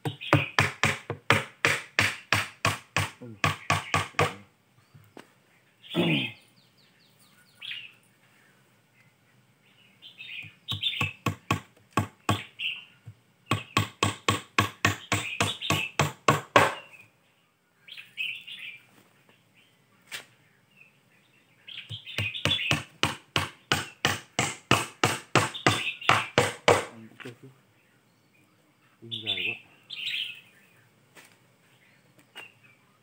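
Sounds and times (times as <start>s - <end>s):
birds chirping: 0.0s - 33.0s
hammer blows on wood: 13.5s - 16.9s, 21.9s - 27.0s.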